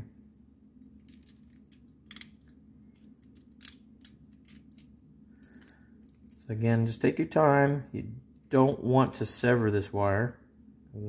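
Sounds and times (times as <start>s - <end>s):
steady low hum: 0.0s - 11.0s
fingers handling wires: 0.3s - 8.5s.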